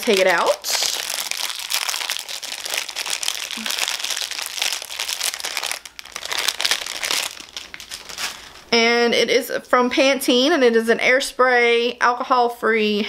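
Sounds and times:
plastic bag crinkling: 0.0s - 8.8s.

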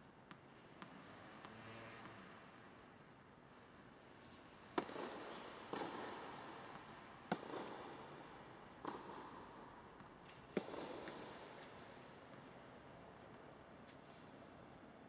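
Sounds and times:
tennis ball hit by racquets: 4.2s - 12.5s.

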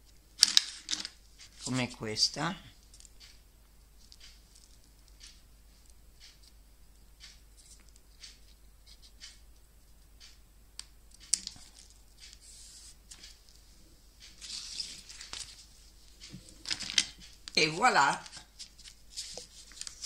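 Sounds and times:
paper rustling: 14.4s - 17.1s, 18.2s - 20.0s.

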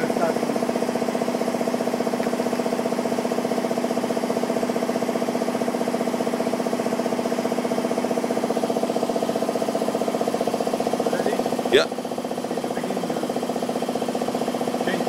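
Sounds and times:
machining centre drone with pulsing: 0.0s - 15.0s.

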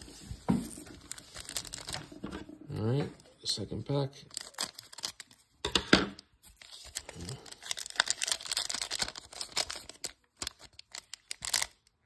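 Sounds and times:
foil wrapper crinkling: 0.8s - 2.3s, 4.2s - 5.5s, 6.4s - 12.0s.

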